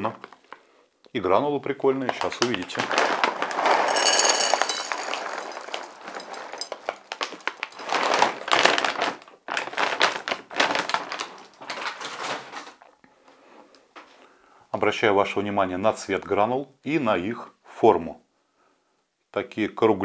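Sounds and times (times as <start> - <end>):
kibble pouring onto plate: 2.3 - 9.8
paper bag rustling: 2.3 - 12.9.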